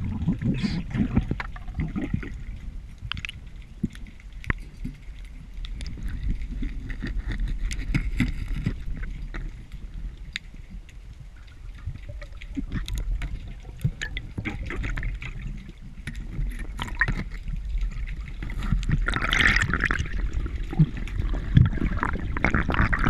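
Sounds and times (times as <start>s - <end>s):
low underwater rumble: 0.0s - 23.0s
rush of water: 0.0s - 23.0s.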